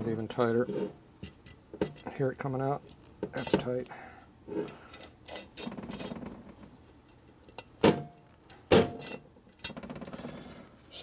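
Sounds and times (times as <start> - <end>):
metal clicks and scrapes: 4.6 - 6.2.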